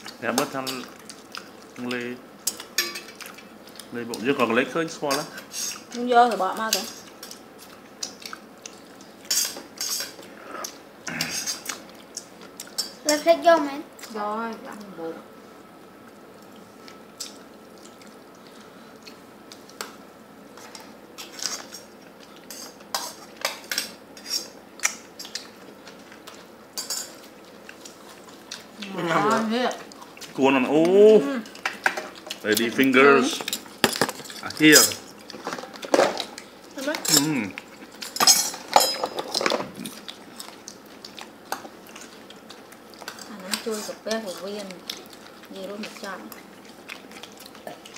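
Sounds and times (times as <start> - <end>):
spoons clinking against metal pots: 2.8 - 3.1.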